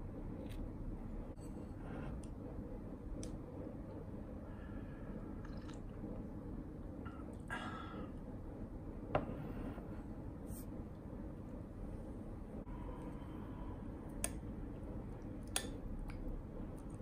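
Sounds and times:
low room noise: 0.0s - 17.0s.

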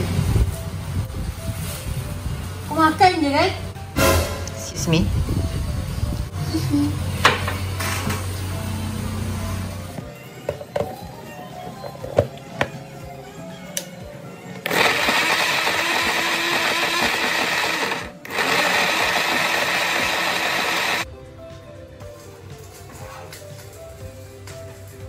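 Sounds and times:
blender grinding: 14.6s - 21.0s.

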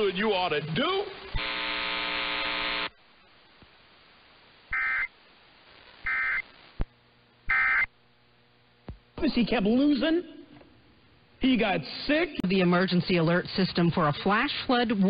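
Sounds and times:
harsh radio tuning buzz: 0.0s - 6.9s, 7.5s - 8.0s
low radio hiss: 0.0s - 15.0s
screeching data bursts: 4.7s - 5.1s, 6.0s - 6.6s, 7.5s - 7.9s.

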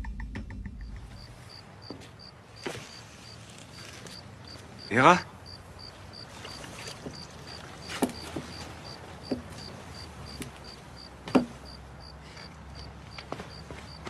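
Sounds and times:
crickets chirping: 0.8s - 14.0s
footsteps on hard ground: 1.0s - 4.8s, 6.9s - 14.0s.

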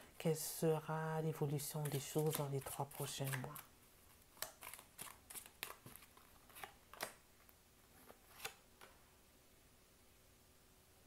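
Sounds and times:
cards being shuffled: 1.5s - 7.2s, 7.9s - 9.0s
crisp card snaps: 4.3s - 7.2s, 8.3s - 8.9s.

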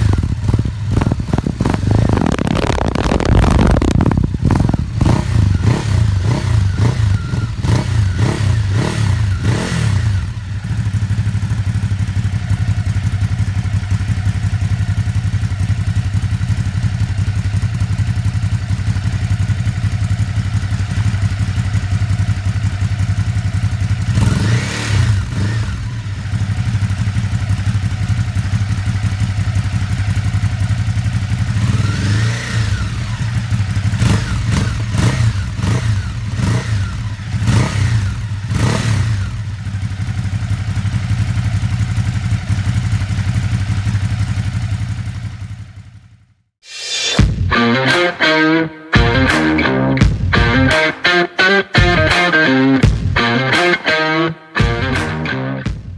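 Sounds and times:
motorcycle throttle revving: 0.0s - 45.8s
motorcycle engine idling: 0.0s - 46.3s.

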